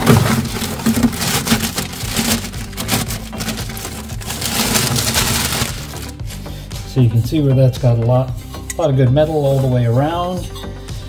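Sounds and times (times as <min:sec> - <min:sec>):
cardboard box handling: 0:00.0 - 0:06.1
plastic bag crinkling: 0:00.0 - 0:06.2.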